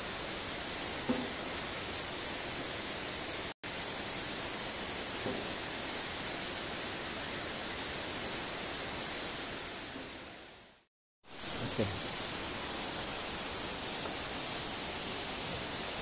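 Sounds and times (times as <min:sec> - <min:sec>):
waterfall rushing: 0:11.3 - 0:16.0.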